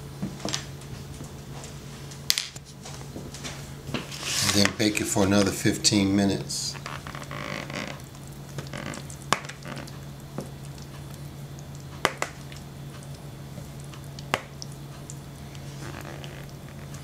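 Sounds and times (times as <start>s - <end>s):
steady low hum: 0.0s - 17.0s
soft wet squishing: 6.7s - 17.0s.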